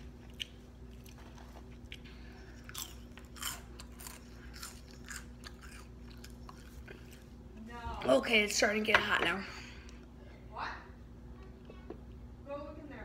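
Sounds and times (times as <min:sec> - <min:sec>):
crunching and chewing snacks: 0:00.0 - 0:07.3
faint steady hum: 0:00.0 - 0:13.0.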